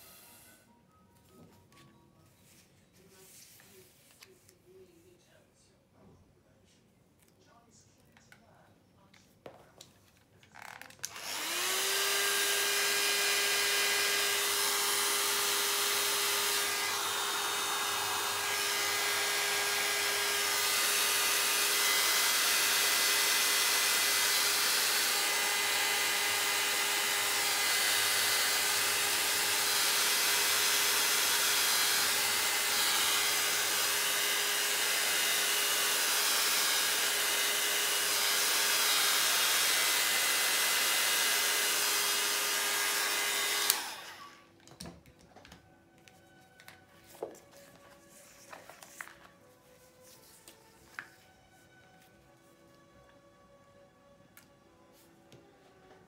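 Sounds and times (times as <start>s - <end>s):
hair dryer running: 0.0s - 0.6s, 11.1s - 44.5s.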